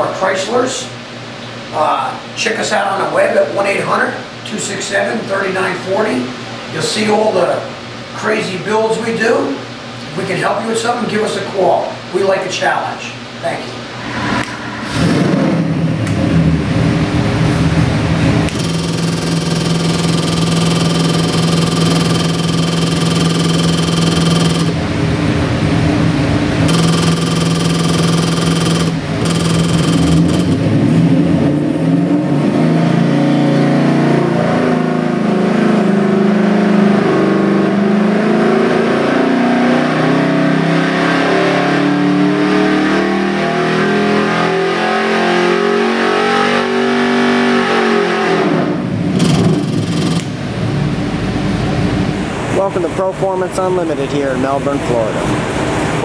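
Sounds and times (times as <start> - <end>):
engine idling and revving: 14.4 - 52.6.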